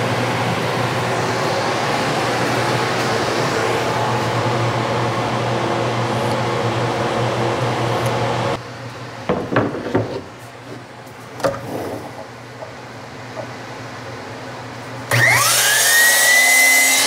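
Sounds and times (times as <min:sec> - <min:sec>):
wood knocking and clattering: 0:09.3 - 0:10.3
power tool running: 0:15.1 - 0:17.0.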